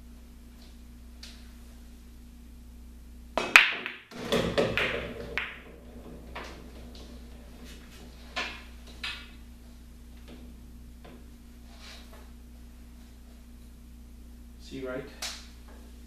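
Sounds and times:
cue striking ball: 3.4 - 9.5
pool balls clacking: 3.4 - 12.4.

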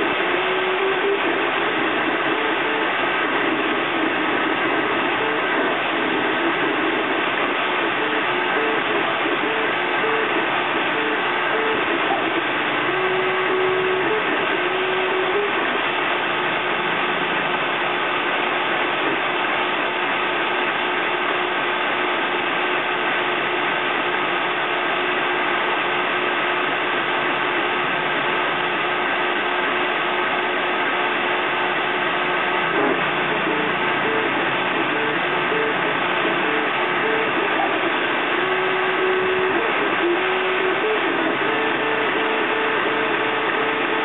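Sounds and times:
fan hiss: 0.0 - 44.0.

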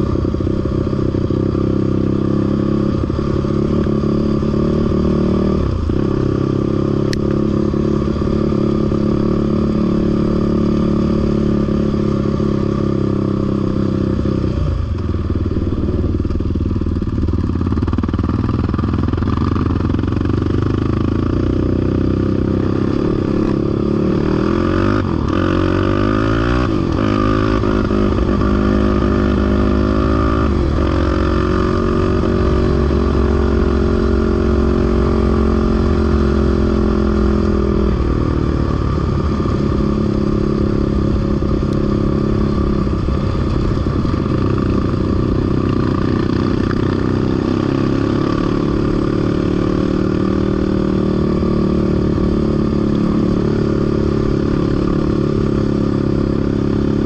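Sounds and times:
off-road vehicle engine revving: 20.5 - 40.4.

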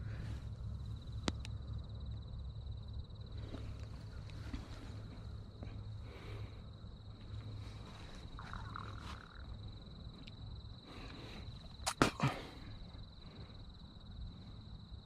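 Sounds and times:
low hum: 0.0 - 15.0
wavering chirp: 8.3 - 9.8.

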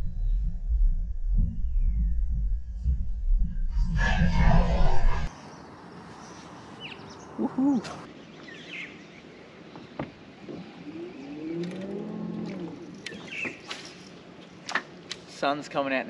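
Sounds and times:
high bird chirps: 5.3 - 8.1
birds calling: 5.3 - 14.5.

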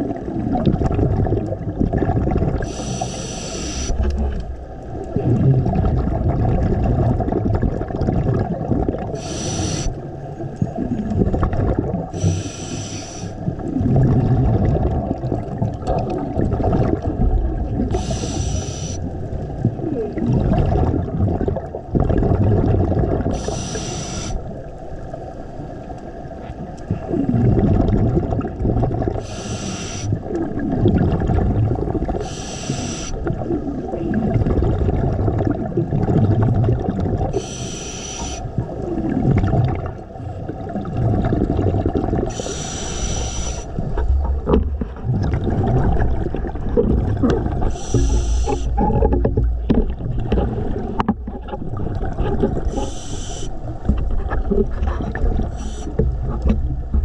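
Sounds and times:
exhaled bubbles gushing: 0.0 - 25.2, 26.2 - 57.0
regulator hissing inhale: 2.6 - 4.1, 9.2 - 10.0, 12.1 - 13.4, 17.9 - 19.1, 23.3 - 24.4, 29.2 - 30.2, 32.2 - 33.3, 37.3 - 38.5, 42.3 - 43.8, 47.6 - 48.8, 52.7 - 53.6, 55.5 - 56.0.

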